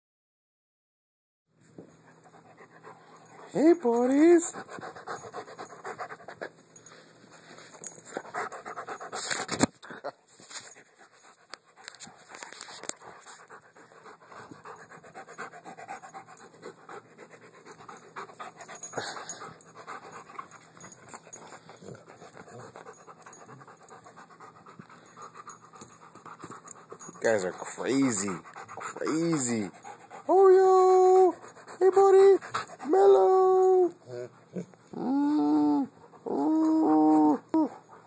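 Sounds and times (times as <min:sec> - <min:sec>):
dog panting: 0:02.1 - 0:09.5, 0:10.7 - 0:33.0.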